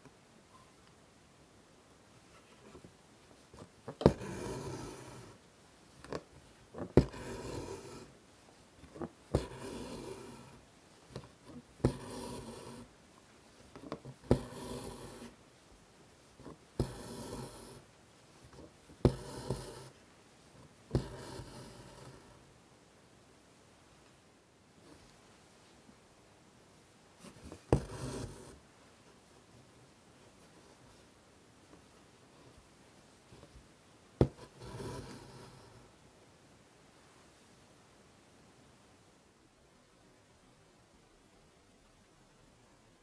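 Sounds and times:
thread rasping through fabric: 3.5s - 5.4s, 6.0s - 8.1s, 8.8s - 12.9s, 13.6s - 15.4s, 16.3s - 17.9s, 18.5s - 20.0s, 20.6s - 22.4s, 27.2s - 28.6s, 34.2s - 35.8s.

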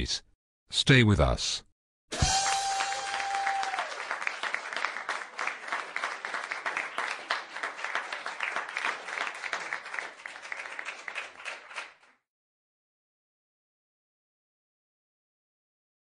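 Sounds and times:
audience applause: 2.2s - 12.2s.

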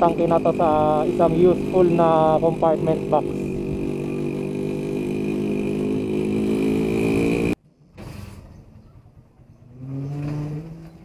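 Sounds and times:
traffic and motor drone: 0.0s - 11.0s.

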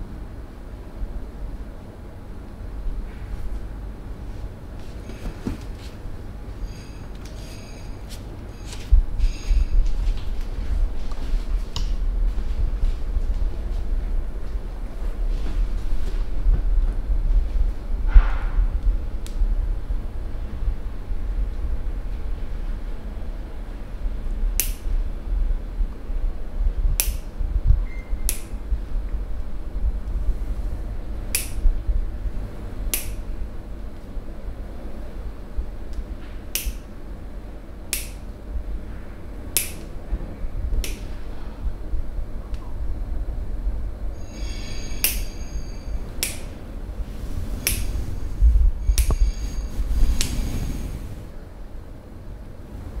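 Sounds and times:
steady low rumble: 0.0s - 53.0s
faint high ring: 6.6s - 9.9s, 44.2s - 46.1s, 48.8s - 49.9s
sharp snaps: 24.6s - 24.9s, 27.0s - 27.3s, 28.3s - 28.6s, 31.3s - 31.6s, 32.9s - 33.3s, 35.9s - 36.9s, 37.9s - 38.2s, 39.5s - 39.9s, 40.8s - 41.1s, 46.2s - 46.5s, 47.6s - 47.9s.

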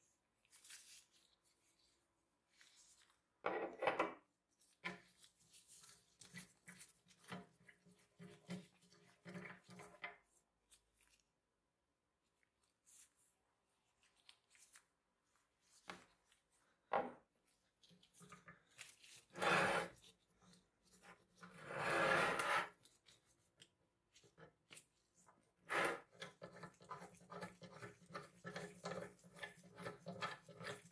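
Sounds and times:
metal grating rubs: 19.3s - 20.0s, 21.6s - 22.7s.

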